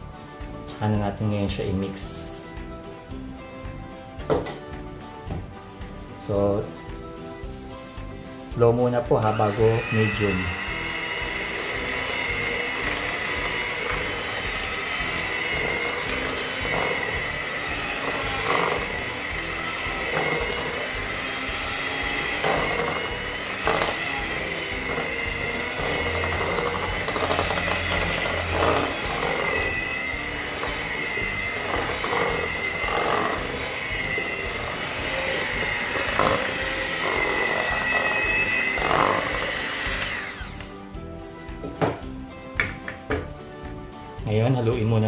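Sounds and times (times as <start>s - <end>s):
electric hand mixer whining: 9.2s - 41.0s.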